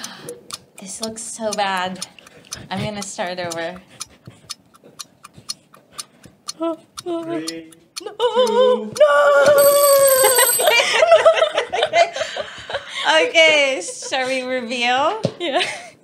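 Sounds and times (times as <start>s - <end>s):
countdown timer ticking: 0.0s - 10.9s
timer alarm ringing: 9.5s - 11.2s.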